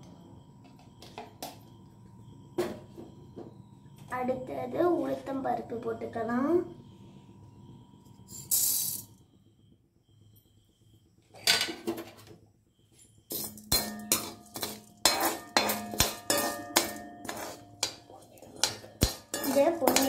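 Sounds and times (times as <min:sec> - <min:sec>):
metal spoon scraping a pan: 0:13.3 - 0:20.0.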